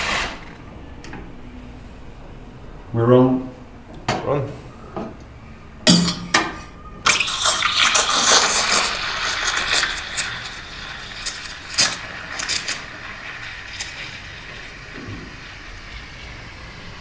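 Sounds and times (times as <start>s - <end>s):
steam wand hissing in milk: 7.1s - 17.0s.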